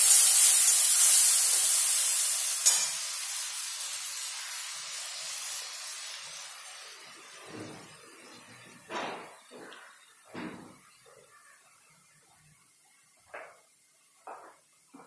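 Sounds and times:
paste sizzling in hot pan: 0:00.0 - 0:08.6.

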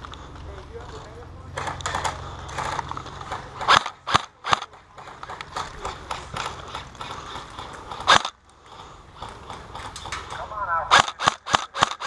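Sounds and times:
airsoft gun cracks: 0:09.9 - 0:12.0.

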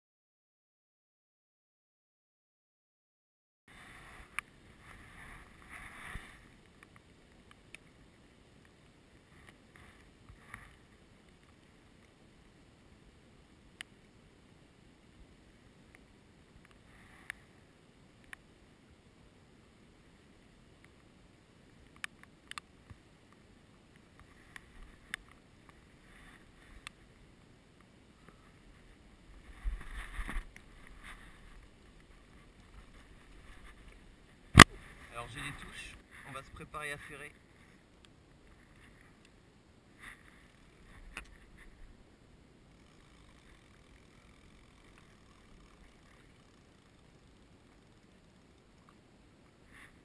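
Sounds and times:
faint outdoor hiss: 0:03.7 - 0:50.0
light rain on pond: 0:04.0 - 0:29.4.

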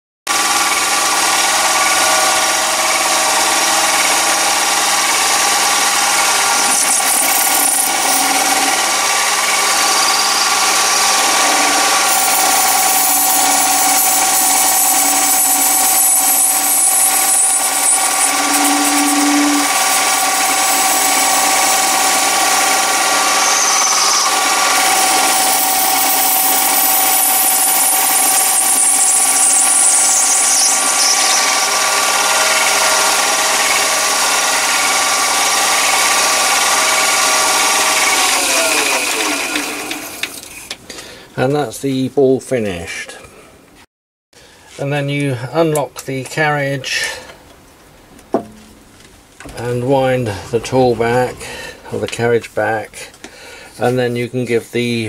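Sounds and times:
lathe cutting hiss: 0:00.3 - 0:40.8, 0:49.4 - 0:52.4
lathe motor whine: 0:00.3 - 0:40.8.

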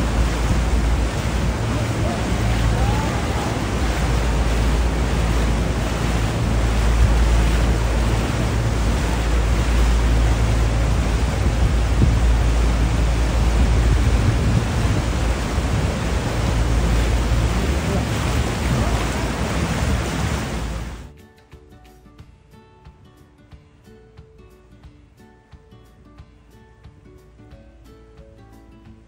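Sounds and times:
loud rushing noise with low rumble: 0:00.0 - 0:21.1.

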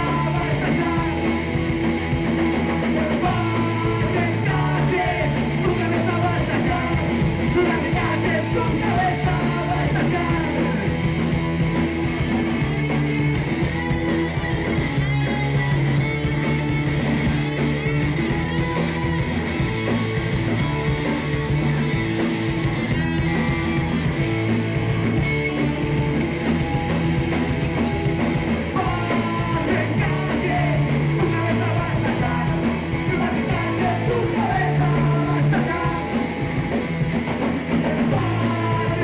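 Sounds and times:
drums: 0:00.0 - 0:39.0
electric guitars: 0:00.0 - 0:39.0.

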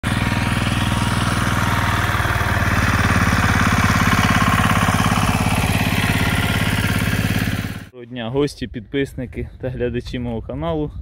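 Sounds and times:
diesel engine chugging: 0:00.0 - 0:07.9.

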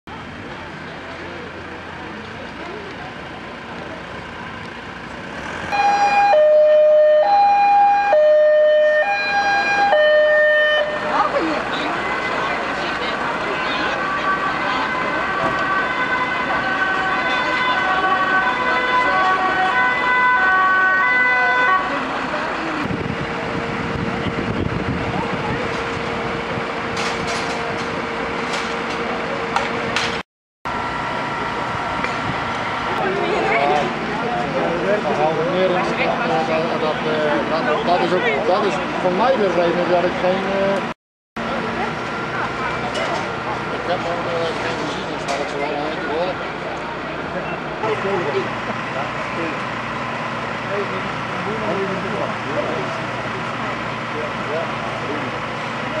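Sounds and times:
engine drone: 0:00.1 - 0:56.0
two-tone siren: 0:05.7 - 0:29.6.

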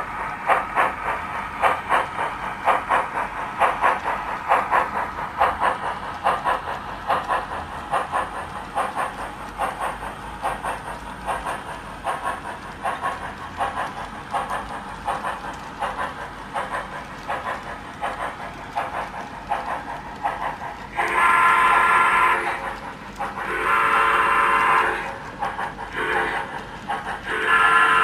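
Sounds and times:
model steam locomotive chuffing: 0:00.0 - 0:28.0
steam whistle blasts: 0:21.0 - 0:22.6, 0:23.5 - 0:25.1, 0:27.3 - 0:28.0.

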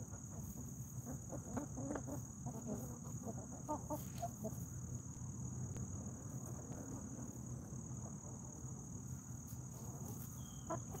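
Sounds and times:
insects trilling: 0:00.0 - 0:11.0
faint low rumble: 0:04.2 - 0:10.1.

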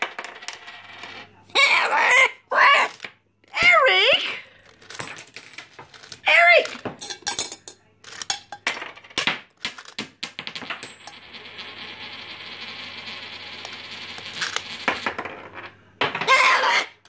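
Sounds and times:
coins clinking in a cup: 0:04.4 - 0:16.3.

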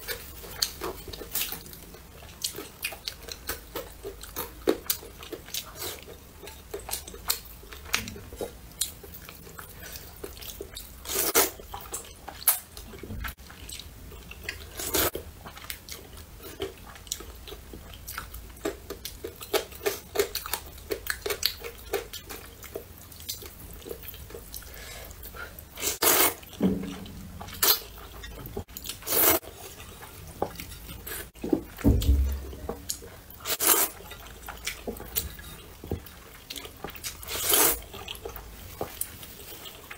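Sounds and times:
wet chewing and mouth smacking: 0:00.0 - 0:39.9.

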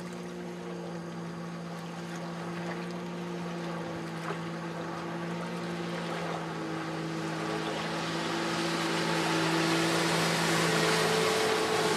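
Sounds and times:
watercraft engine droning: 0:00.0 - 0:11.9
rushing water and spray: 0:03.4 - 0:11.9.

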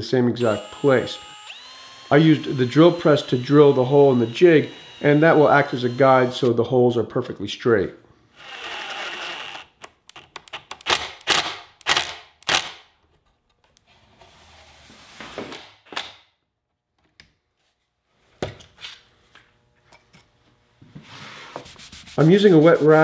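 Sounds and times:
cordless driver driving screws: 0:00.4 - 0:06.5, 0:08.4 - 0:12.8.

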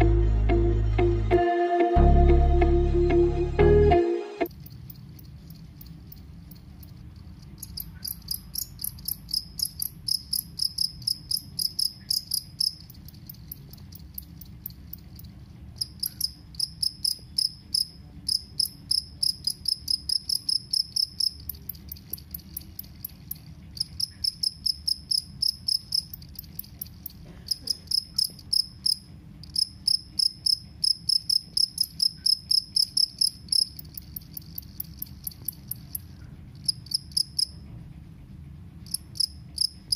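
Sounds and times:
cricket chirping: 0:04.5 - 0:37.6, 0:38.8 - 0:39.9.

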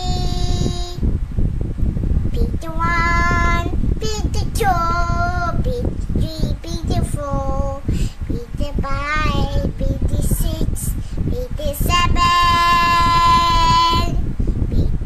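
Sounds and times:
girl singing long notes: 0:02.4 - 0:14.2.

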